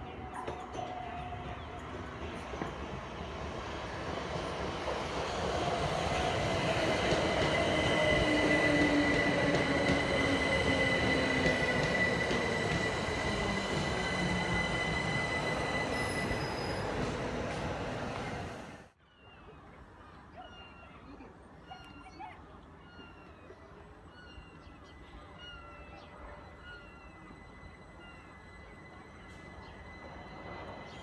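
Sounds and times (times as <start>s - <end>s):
train wheel rumble: 0.0s - 18.9s
high brake squeal: 7.8s - 17.3s.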